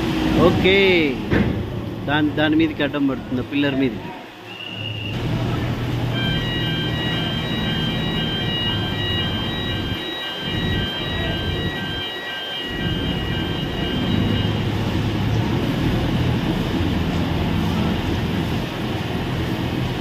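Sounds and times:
diesel construction machinery running: 0:04.8 - 0:20.0
electronic warning beeper: 0:06.0 - 0:15.2.

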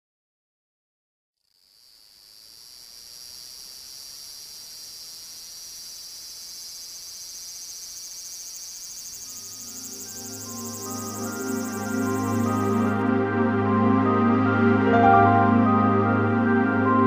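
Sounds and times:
cicadas buzzing in chorus: 0:01.4 - 0:13.0.

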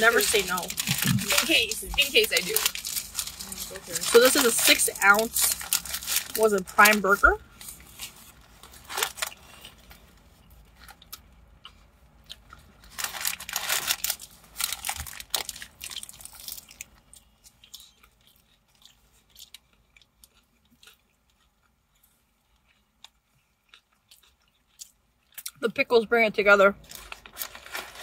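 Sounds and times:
paper wrapper crinkling: 0:00.0 - 0:09.7, 0:12.8 - 0:16.9, 0:26.8 - 0:28.0
biting and chewing hamburger: 0:00.0 - 0:25.6.

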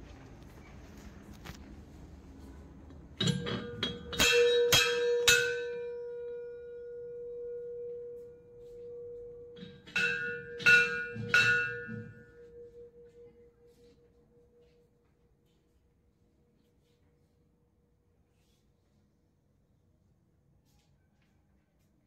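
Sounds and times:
temple bell clanging: 0:03.2 - 0:14.0.

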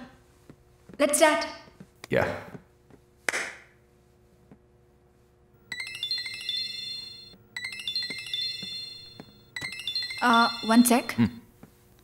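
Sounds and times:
mobile phone chiming ringtone: 0:05.6 - 0:11.4.

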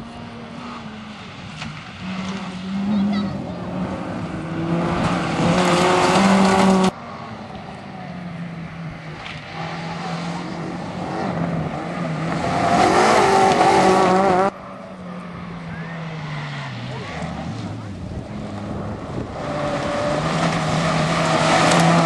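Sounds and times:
rally car engine full throttle: 0:00.0 - 0:22.0.

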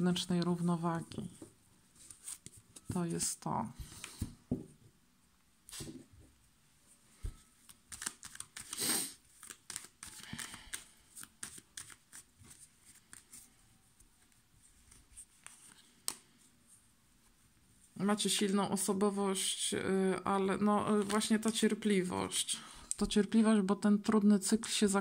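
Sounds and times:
cards being shuffled: 0:02.0 - 0:02.9, 0:05.7 - 0:06.1, 0:07.6 - 0:13.5, 0:14.2 - 0:16.4, 0:20.9 - 0:21.7
rustle of cards sliding: 0:07.7 - 0:13.6.

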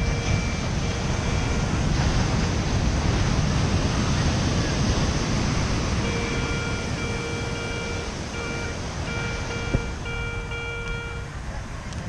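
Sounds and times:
metal detector beeping: 0:00.0 - 0:01.8, 0:06.0 - 0:11.3
surf rushing: 0:00.0 - 0:11.8
wind on microphone: 0:00.0 - 0:12.0.

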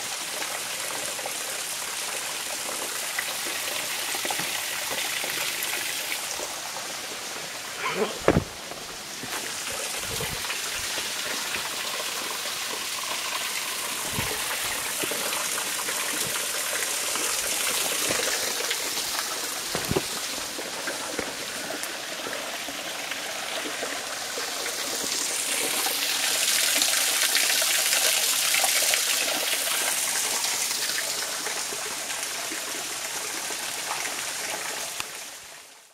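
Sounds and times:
water splashing over rocks: 0:02.2 - 0:31.2
short knocks: 0:08.1 - 0:09.4.

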